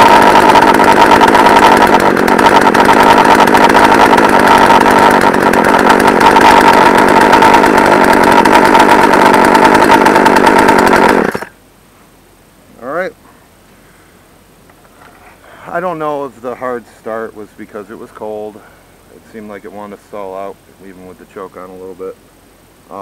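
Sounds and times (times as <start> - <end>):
chainsaw engine running: 0.0 - 11.6.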